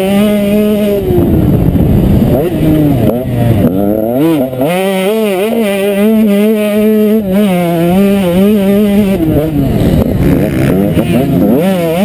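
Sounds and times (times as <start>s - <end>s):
motorbike engine revving: 0.0s - 12.0s.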